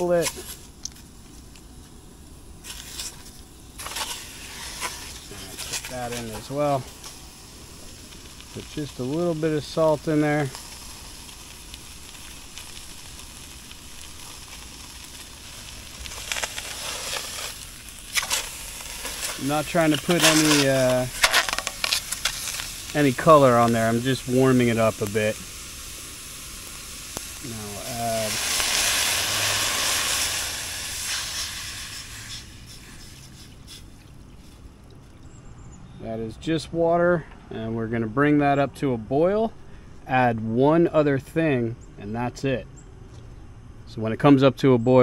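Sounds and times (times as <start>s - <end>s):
fish sizzling in a pot: 0.0s - 34.7s
sharp crackles in a pot: 0.0s - 35.4s.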